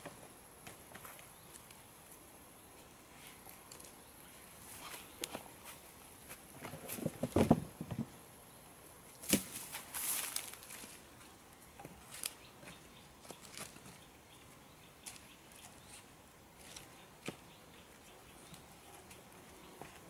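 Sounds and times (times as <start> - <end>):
twigs clicking and tapping: 3.4 - 4.0, 4.8 - 5.5, 11.8 - 14.0, 15.0 - 16.0
rustling: 9.1 - 11.1.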